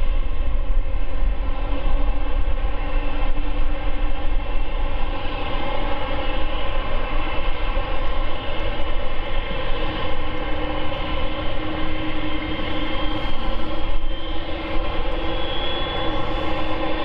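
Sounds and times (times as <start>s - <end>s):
jet engines whining: 1.8s - 17.0s.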